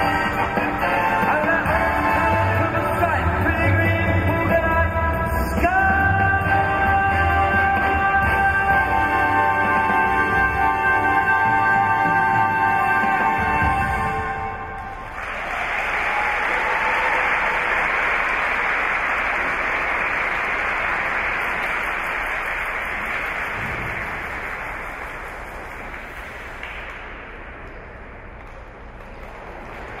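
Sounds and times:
audience applauding: 14.8 - 30.0.

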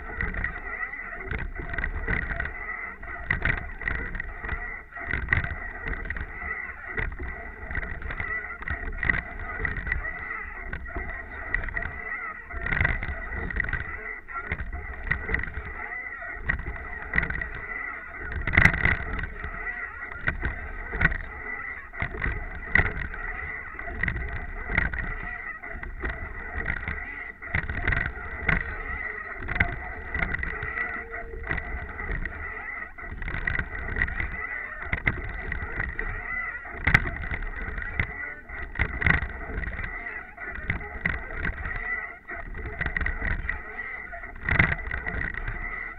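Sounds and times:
water washing along a hull: 12.6 - 15.8, 16.4 - 36.2, 40.6 - 41.6, 42.4 - 43.4
rowing stroke knocks: 16.4 - 43.6.

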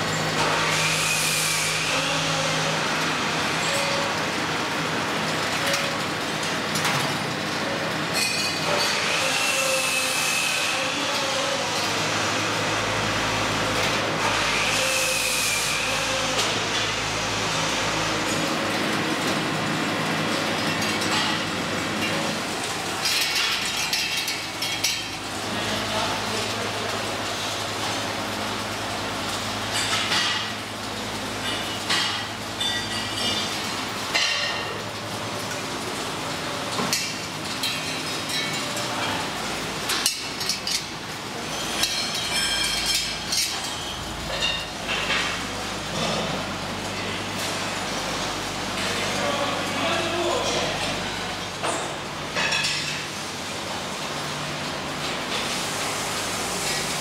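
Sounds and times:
steady workshop hum: 0.0 - 57.0
metal racks clinking and rattling: 18.2 - 27.1, 36.6 - 55.6
metal tubes clinking: 32.6 - 33.6, 39.9 - 45.1.

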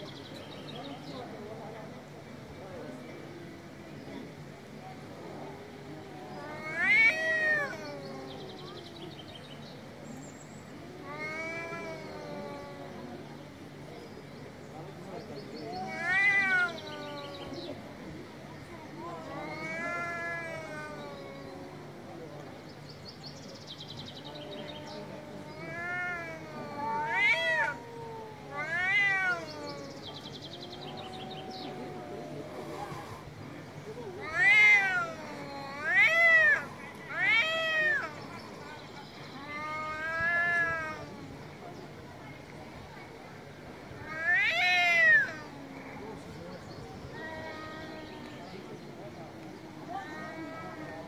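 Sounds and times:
cats yowling: 5.9 - 8.7, 11.0 - 13.2, 15.7 - 17.6, 19.2 - 22.1, 24.2 - 33.2, 34.1 - 38.6, 39.3 - 41.4, 44.0 - 46.2.

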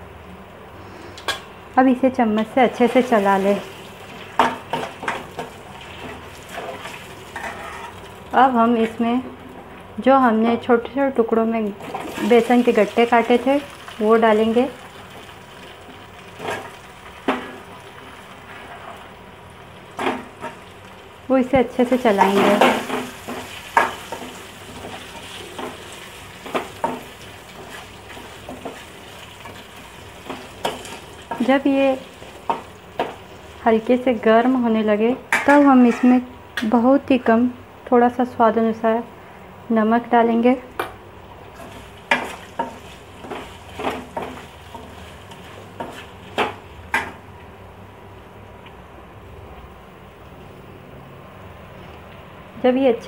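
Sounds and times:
low steady sizzle: 0.0 - 53.0
spoon scraping a steel pan: 7.4 - 8.0.

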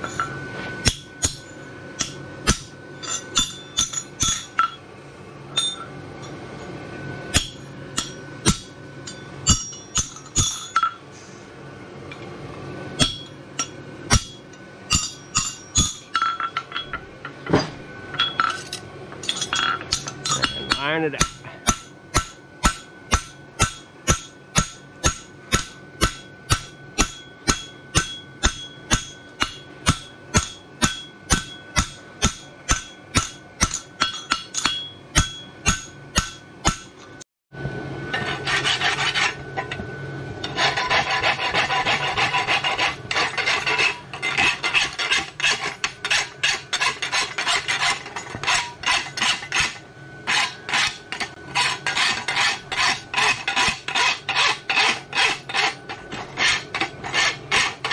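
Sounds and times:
hammer blows on anvil ringing: 0.0 - 4.8, 7.3 - 11.0, 13.0 - 37.2
rapid scraping of metal: 38.1 - 57.9.

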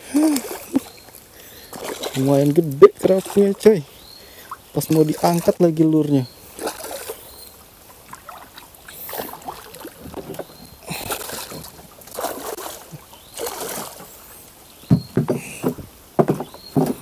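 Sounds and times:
fish splashing and thrashing: 0.0 - 14.5
water sloshing: 0.0 - 17.0
knocks and thuds on wooden boat: 14.8 - 17.0.

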